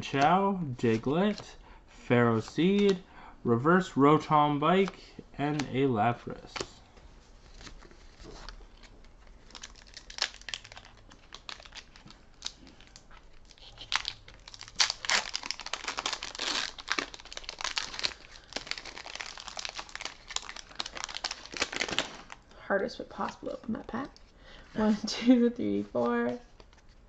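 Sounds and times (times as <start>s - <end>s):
foil wrapper crinkling and tearing: 7.5s - 22.4s.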